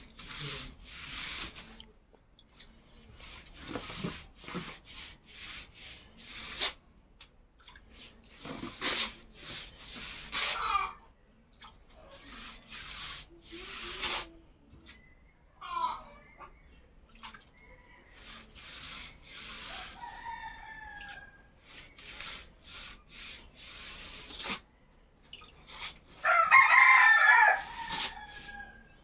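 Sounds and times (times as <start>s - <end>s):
hand rubbing paint on wall: 0.0s - 1.8s, 3.0s - 6.8s, 7.9s - 10.9s, 12.0s - 14.4s, 18.0s - 24.7s, 25.4s - 26.3s, 26.9s - 29.0s.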